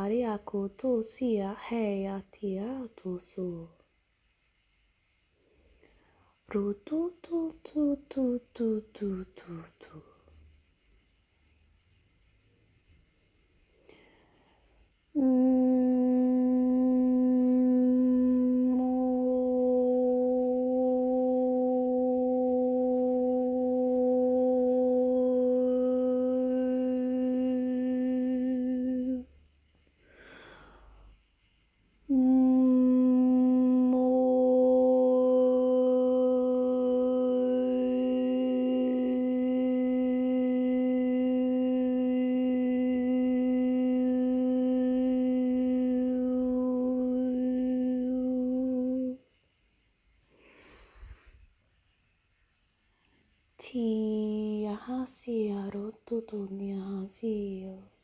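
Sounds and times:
person humming a held note: 15.1 - 29.3, 32.1 - 49.3.

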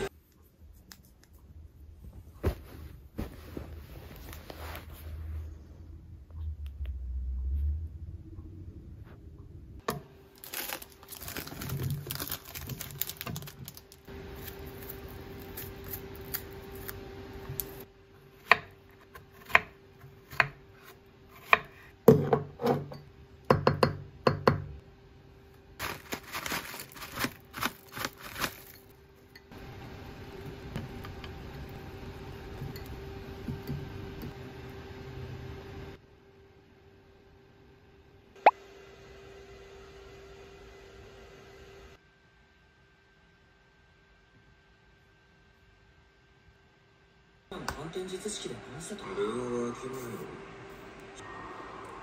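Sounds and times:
faint hum: 0.0 - 52.0
plastic packaging crinkling: 10.3 - 17.0, 25.8 - 29.0.

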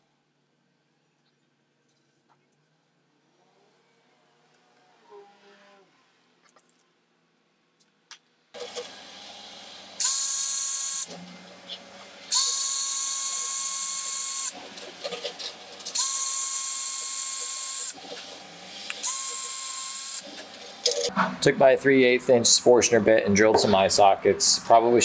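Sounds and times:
cordless drill whine: 10.0 - 11.1, 12.3 - 14.6, 15.9 - 18.0, 19.0 - 20.2
drill bit cutting wood: 10.0 - 11.1, 12.3 - 14.6, 15.9 - 18.0, 19.0 - 20.2.

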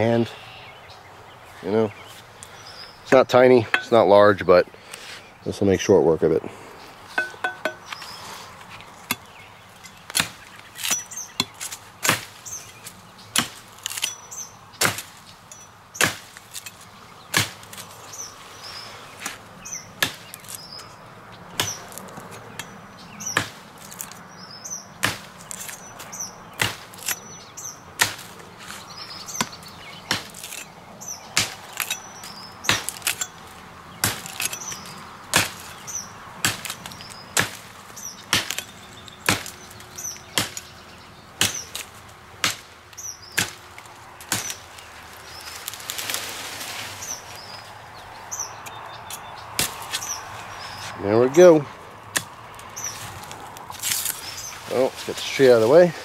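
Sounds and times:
knife chopping into wood: 25.0 - 25.8, 32.7 - 33.3, 34.0 - 35.7, 36.4 - 37.7, 38.3 - 38.7, 39.3 - 39.6, 41.4 - 42.7, 43.4 - 43.6, 44.2 - 44.6.

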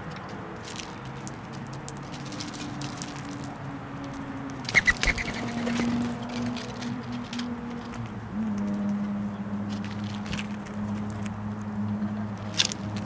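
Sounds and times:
birds pecking at seed: 0.0 - 8.0.

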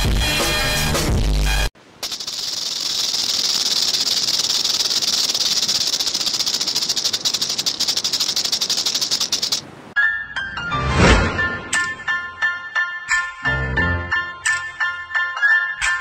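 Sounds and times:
high-pitched buzzing rattle: 2.0 - 9.6.

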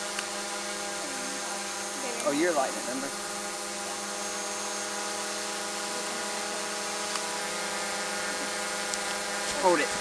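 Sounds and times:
small motors buzzing: 0.0 - 10.0.

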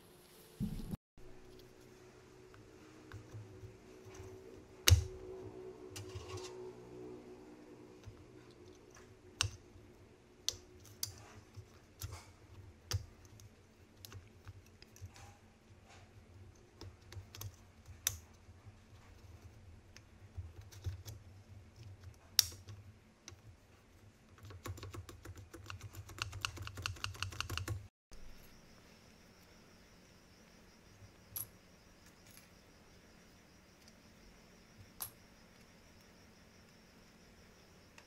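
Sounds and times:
faint steady hum: 28.1 - 38.0.

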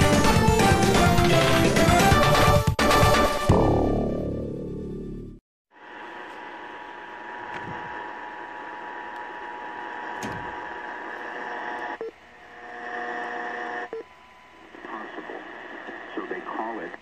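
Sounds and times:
radio tuning click: 7.4 - 8.2, 8.9 - 12.0, 14.6 - 17.0
radio static hiss: 14.5 - 17.0.

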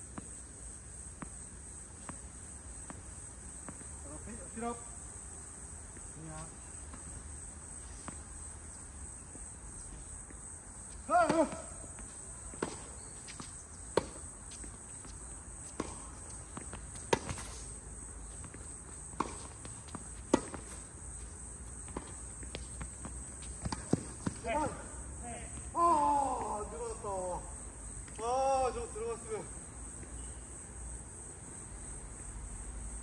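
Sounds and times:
high insect drone: 0.0 - 33.0
person shouting: 11.1 - 11.7, 25.7 - 26.8
tennis ball struck by rackets: 11.1 - 14.6, 15.6 - 17.7, 19.0 - 20.8, 21.8 - 24.8
ball bouncing on court: 19.2 - 20.8, 21.9 - 24.8.

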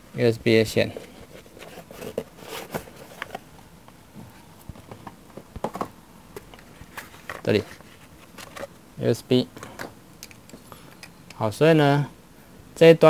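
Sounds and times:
usb cable rustling and clicking: 4.6 - 8.8.

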